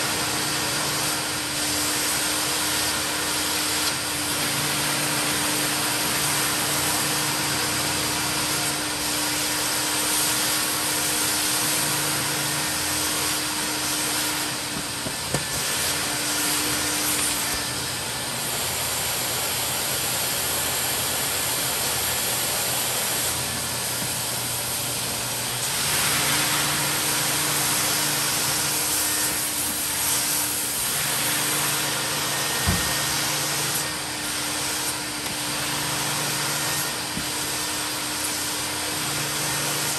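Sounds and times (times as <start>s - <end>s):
vacuum motor running: 0.0s - 39.9s
knock: 32.6s - 32.9s.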